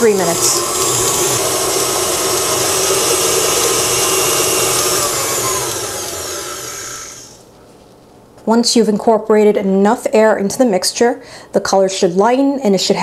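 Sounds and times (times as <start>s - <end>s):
mixer motor winding down: 0.0s - 7.4s
stand mixer whirring: 0.0s - 7.4s.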